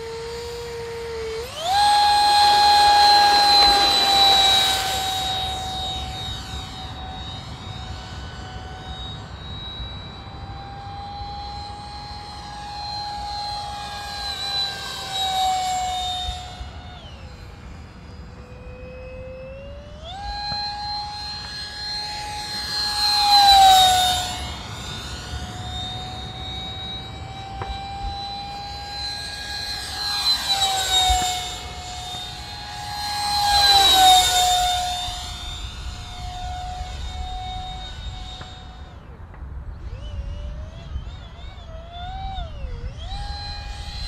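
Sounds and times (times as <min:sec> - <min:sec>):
model jet fan whining: 0:00.0 - 0:44.0.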